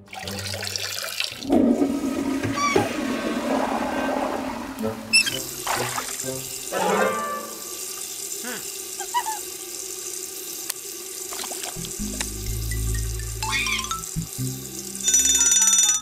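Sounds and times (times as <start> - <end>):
tap running into washbasin: 0.1 - 14.7
cartoon character vocal noises: 8.4 - 9.5
low drone: 11.8 - 15.2.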